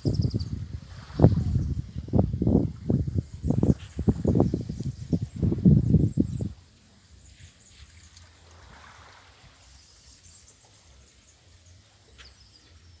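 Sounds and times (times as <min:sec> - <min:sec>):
wind rumble on microphone: 0:00.0 - 0:10.2
soft water wash: 0:00.0 - 0:13.0.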